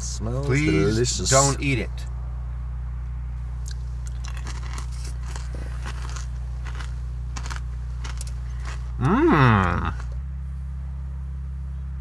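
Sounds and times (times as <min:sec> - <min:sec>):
steady low hum: 0:00.0 - 0:12.0
person chewing crunchy toffee: 0:03.5 - 0:10.2.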